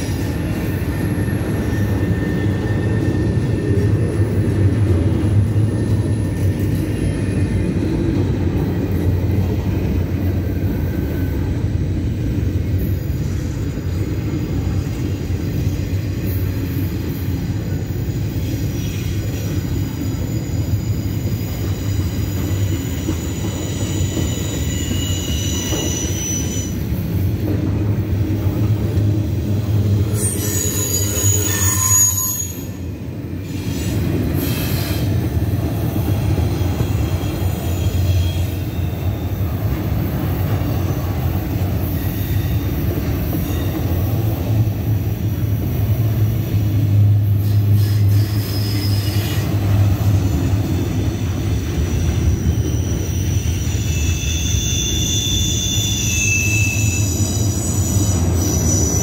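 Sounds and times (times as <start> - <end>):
steel wheels rumbling on rail: 0.0 - 59.0
high wheel squeals: 18.1 - 27.0, 30.0 - 35.2, 36.4 - 44.2, 47.3 - 59.0.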